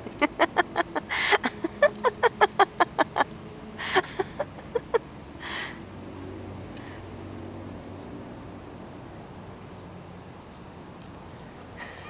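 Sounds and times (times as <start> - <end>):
person laughing: 0.0 - 5.0, 11.8 - 12.0.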